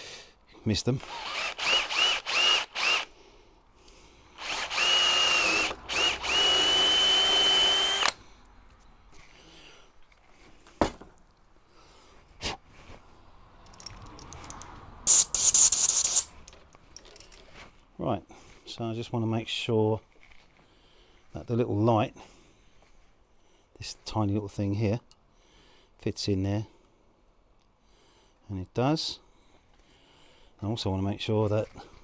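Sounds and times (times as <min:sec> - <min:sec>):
power drill whining: 0:01.0 - 0:03.2, 0:04.4 - 0:08.2, 0:15.1 - 0:16.3.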